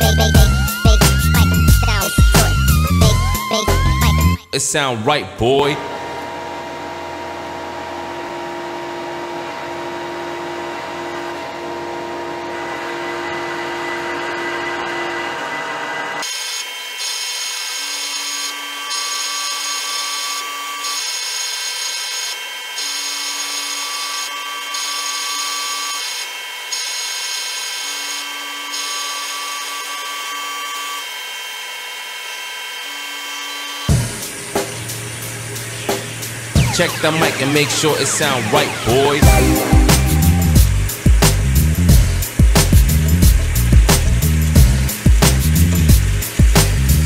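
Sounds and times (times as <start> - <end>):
machine drilling metal plate: 9.1 - 39.2
spindle whining: 35.6 - 41.1.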